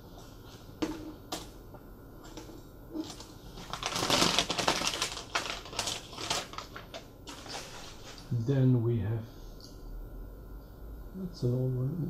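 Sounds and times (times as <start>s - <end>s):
paper crinkling: 2.9s - 8.4s.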